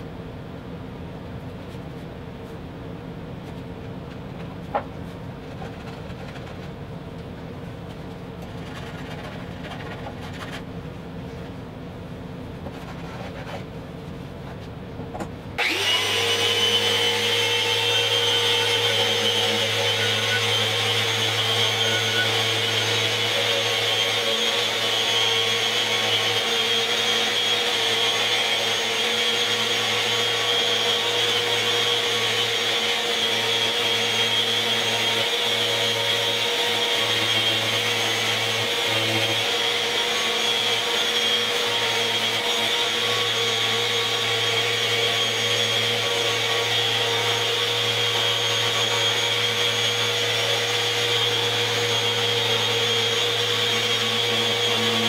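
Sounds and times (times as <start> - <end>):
dust extractor drawing air: 15.6 - 55.0
orbital sander running: 15.6 - 55.0.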